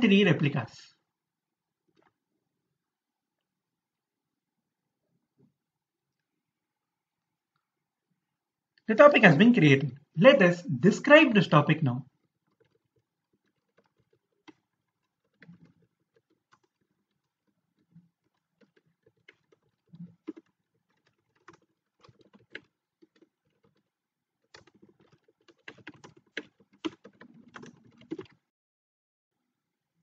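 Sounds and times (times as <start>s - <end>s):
typing on computer keyboard: 12.2s - 28.4s.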